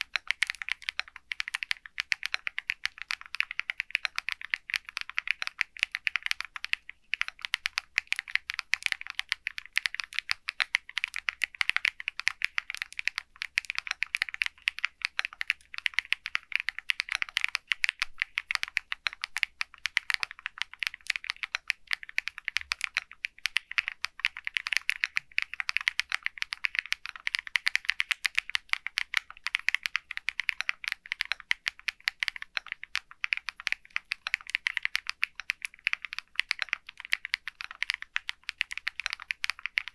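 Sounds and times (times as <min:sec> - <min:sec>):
mechanical keyboard typing: 0:00.0 - 0:39.9.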